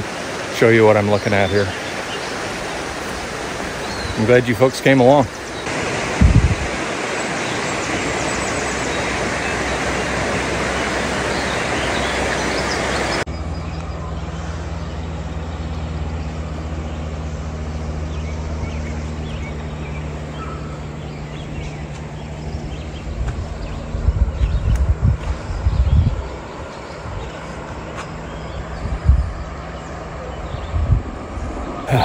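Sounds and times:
water rushing over rapids: 0.0 - 13.3
low mechanical hum: 5.4 - 32.0
low bumps: 14.8 - 32.0.

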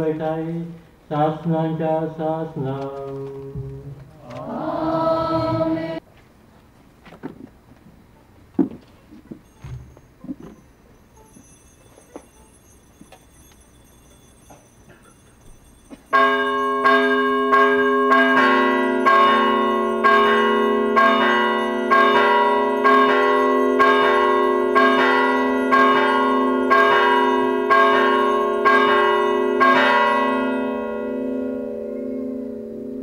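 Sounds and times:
bell ringing: 9.4 - 33.0.

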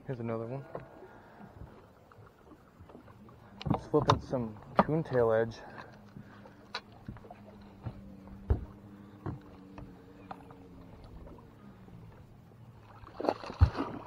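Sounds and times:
faint low hum: 0.4 - 14.0
knocks of handling in boat: 2.8 - 11.5
fish splashing at surface: 12.9 - 14.0.

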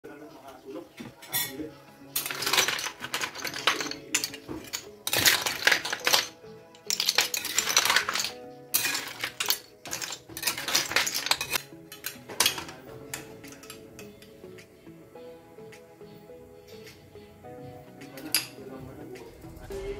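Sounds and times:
soft background music: 0.0 - 19.9
seashells rattling in a container: 2.2 - 11.6.

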